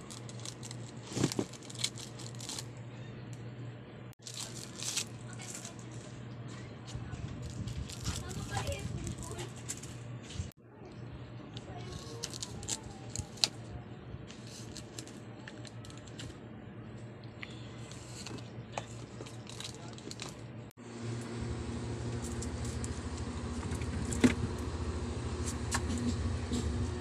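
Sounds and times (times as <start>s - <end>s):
plastic shrink-wrap crinkling: 0.0s - 2.7s, 4.2s - 6.1s, 7.4s - 9.8s, 11.9s - 13.6s, 19.0s - 20.4s
steady low hum: 0.0s - 27.0s.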